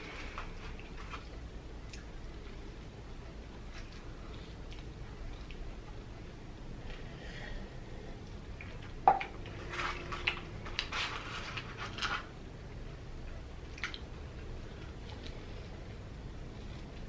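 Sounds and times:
wet chewing sounds: 0:00.0 - 0:02.9, 0:03.5 - 0:06.1, 0:13.6 - 0:17.0.

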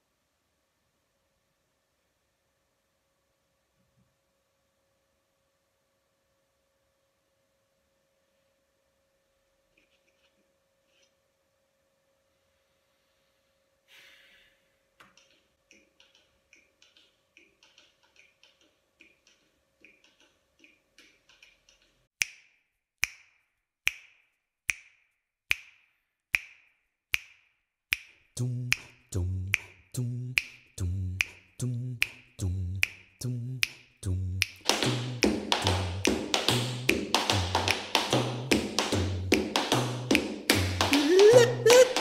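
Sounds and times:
finger snaps: 0:23.9 - 0:30.6, 0:31.2 - 0:33.8
deep sung bass note: 0:28.4 - 0:37.6.

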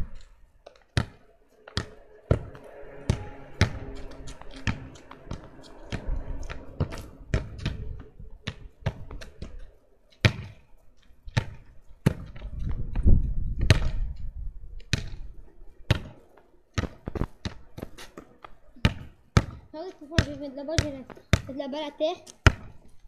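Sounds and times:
ball bouncing on ground: 0:00.0 - 0:23.0
low rumble: 0:01.5 - 0:08.5.

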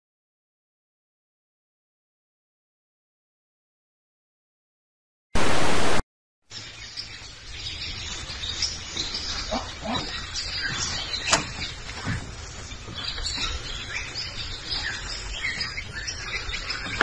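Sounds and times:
loud hiss burst: 0:05.4 - 0:06.0
small birds chirping: 0:06.5 - 0:17.0.

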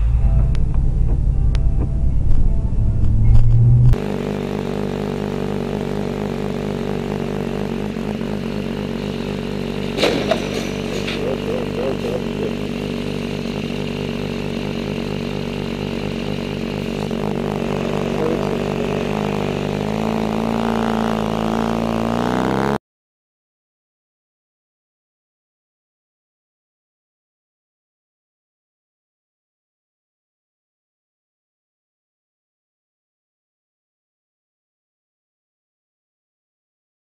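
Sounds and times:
motorcycle engine running: 0:00.0 - 0:22.8.

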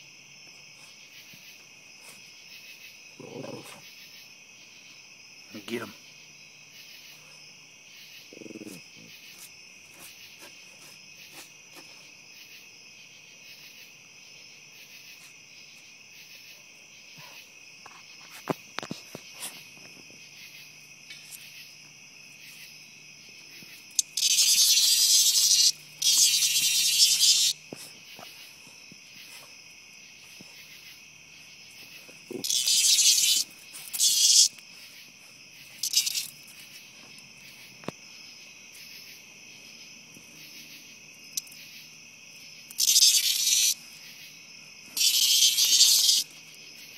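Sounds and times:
night insects chorus: 0:00.0 - 0:46.9
cicada buzzing harshly: 0:22.4 - 0:46.9.

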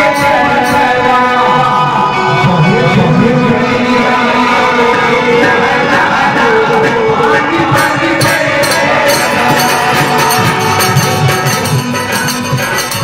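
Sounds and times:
backing instruments: 0:00.0 - 0:13.0
man singing into microphone: 0:00.0 - 0:13.0
tambourine jingling: 0:07.9 - 0:13.0.

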